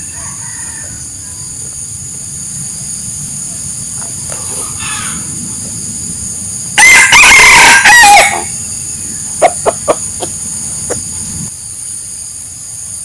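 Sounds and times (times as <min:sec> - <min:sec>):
rooster crowing: 0:00.0 - 0:01.7, 0:04.6 - 0:05.4, 0:06.8 - 0:10.3
chicken clucking: 0:09.3 - 0:11.2.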